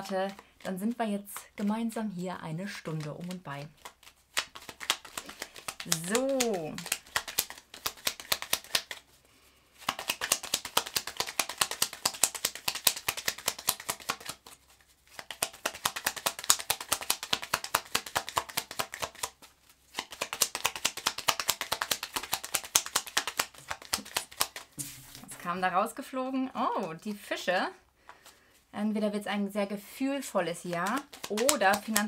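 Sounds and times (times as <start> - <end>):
cards being shuffled: 0.0 - 1.6, 2.7 - 9.2, 9.8 - 25.6, 30.5 - 32.0.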